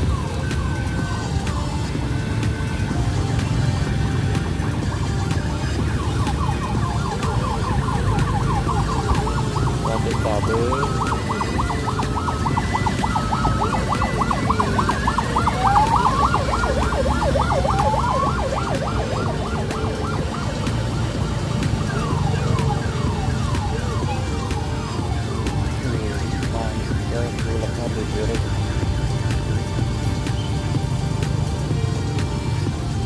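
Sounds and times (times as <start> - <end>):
siren-like warbling tone: 3.0 - 28.5.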